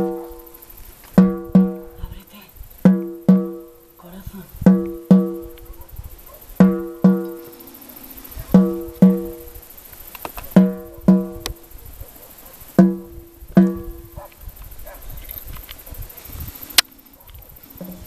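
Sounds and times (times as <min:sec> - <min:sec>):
frame drum struck with beater: 0:00.0 - 0:00.6, 0:01.2 - 0:02.2, 0:02.8 - 0:03.8, 0:04.6 - 0:05.6, 0:06.6 - 0:07.7, 0:08.5 - 0:09.6, 0:10.5 - 0:11.6, 0:12.8 - 0:14.2, 0:17.8 - 0:18.0.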